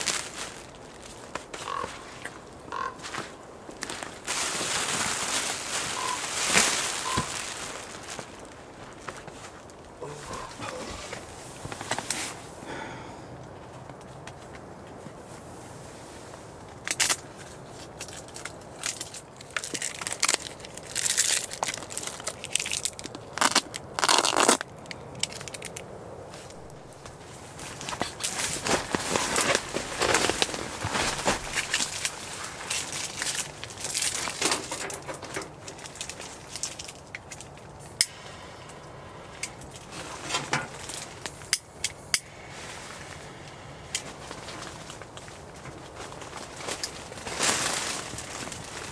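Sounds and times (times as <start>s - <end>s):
fabric rustling and crinkling: 0.0s - 12.6s, 13.6s - 25.7s, 26.3s - 37.8s, 42.4s - 48.9s.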